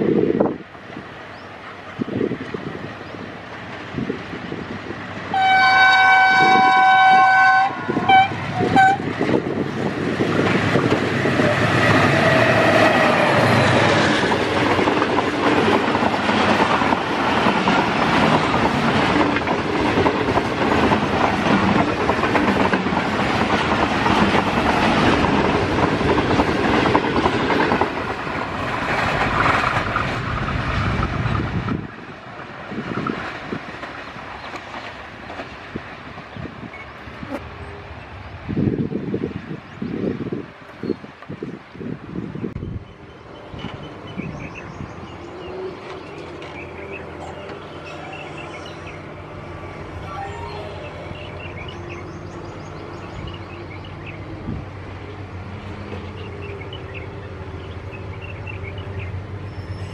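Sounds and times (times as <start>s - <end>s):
locomotive horn blasts: 5.3s - 9.1s
train wheels clattering over rails: 8.4s - 36.7s.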